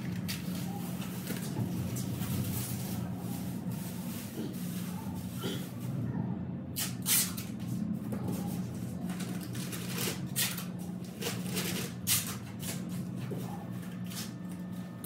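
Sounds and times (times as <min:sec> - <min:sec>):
steady low hum: 0:00.0 - 0:15.0
plastic film crinkling: 0:08.8 - 0:12.8.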